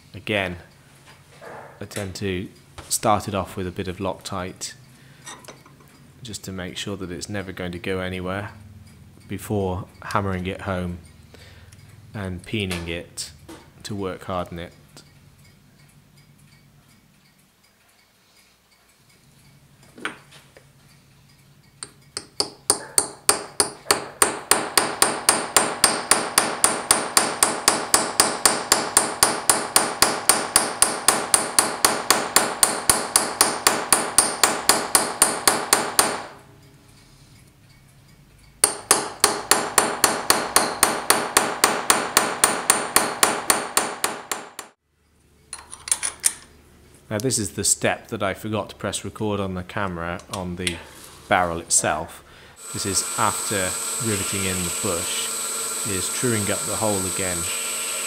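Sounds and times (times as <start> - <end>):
hammer striking steel punch: 21.8 - 36.4, 38.6 - 44.8.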